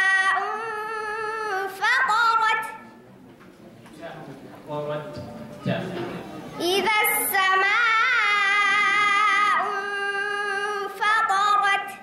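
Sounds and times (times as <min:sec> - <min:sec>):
girl chanting melodic recitation: 0:00.0 - 0:02.8, 0:06.6 - 0:12.0.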